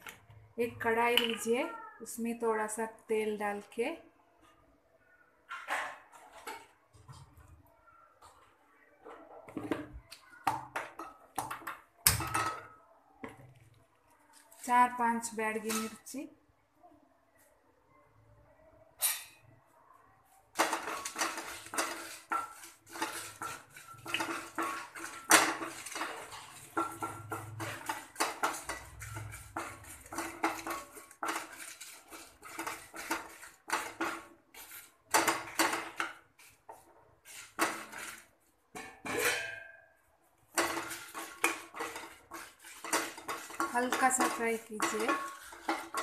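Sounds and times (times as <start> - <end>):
wooden spatula scraping a pan: 20.5 - 39.5, 40.4 - 46.0.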